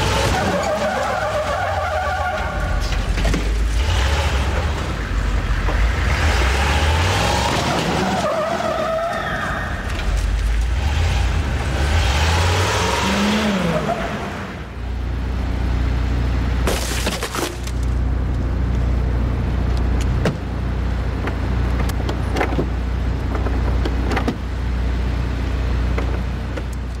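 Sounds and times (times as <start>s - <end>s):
vehicle engine and tyre rush: 0.0s - 16.7s, 17.5s - 27.0s
tyre squeal: 0.2s - 3.0s, 7.6s - 9.9s
low engine hum: 8.9s - 27.0s
clicks and knocks from wrecked car: 16.6s - 18.0s.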